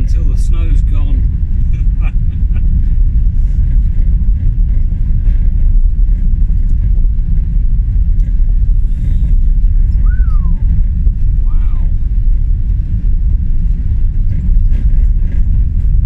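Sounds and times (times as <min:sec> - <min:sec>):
tyres on snowy road: 0:00.0 - 0:16.0
van engine rumble: 0:00.0 - 0:16.0.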